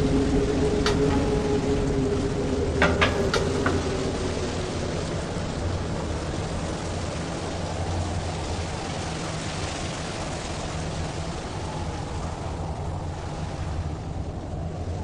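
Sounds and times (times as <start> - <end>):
low rumble: 0.0 - 9.0
steady rushing noise: 0.0 - 15.0.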